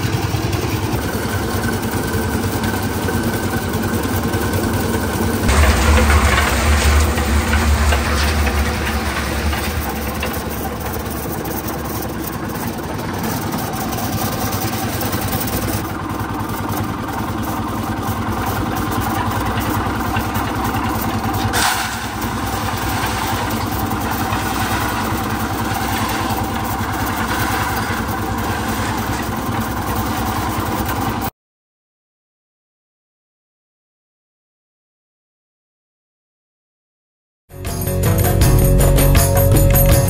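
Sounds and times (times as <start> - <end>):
concrete mixer running: 0.0 - 31.3.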